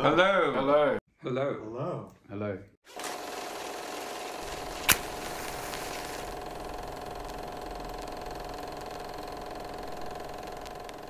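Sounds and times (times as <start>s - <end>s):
mechanical whirring hum: 3.0s - 11.0s.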